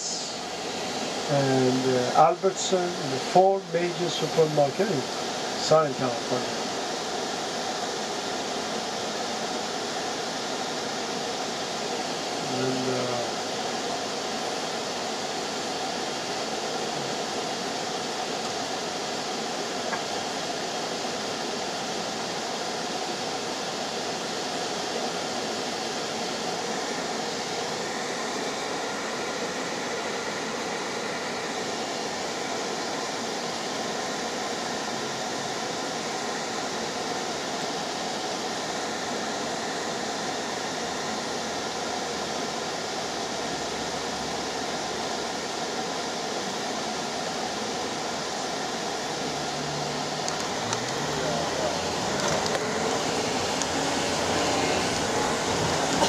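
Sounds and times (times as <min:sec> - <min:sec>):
low engine hum: 0:48.9 - 0:56.0
street traffic rushing: 0:49.1 - 0:56.0.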